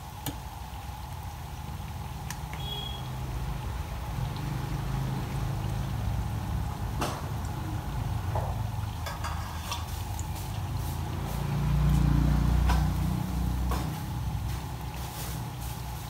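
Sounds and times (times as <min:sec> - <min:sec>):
chicken deep-frying in bubbling oil: 0:00.0 - 0:16.0
metal skimmer clinking on pan: 0:09.0 - 0:10.0.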